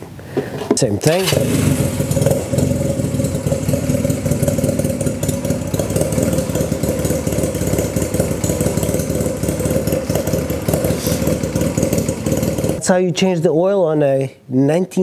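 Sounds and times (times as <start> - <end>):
motorcycle engine idling: 1.2 - 12.8.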